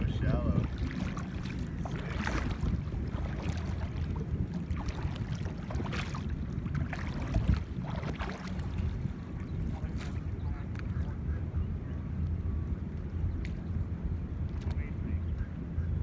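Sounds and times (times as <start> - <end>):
paddle splashing in water: 0.0 - 10.8
wind rumbling on microphone: 0.0 - 16.0.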